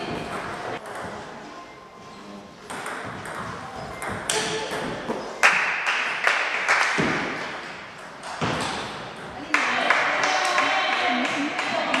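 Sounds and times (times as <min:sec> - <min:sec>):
table tennis ball hits: 0:02.7 - 0:10.5.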